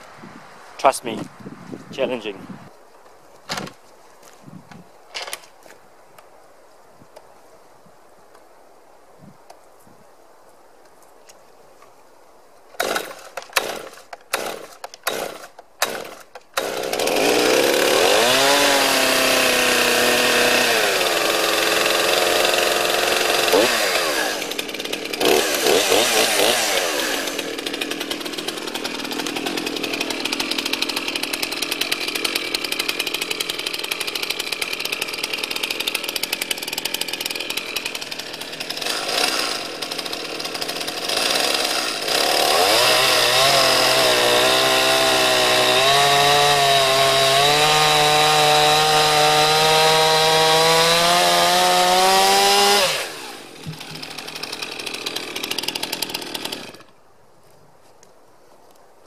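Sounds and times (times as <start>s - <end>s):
chainsaw cutting log: 3.5s - 3.8s, 12.8s - 57.0s.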